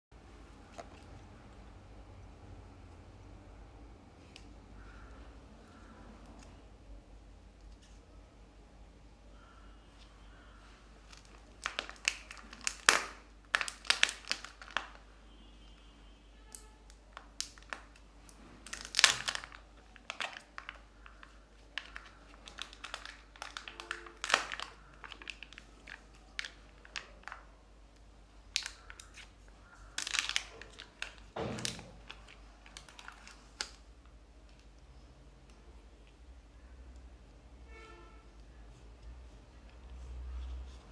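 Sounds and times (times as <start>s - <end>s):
plastic wrapper crinkling and tearing: 11.0s - 15.1s, 16.5s - 35.0s.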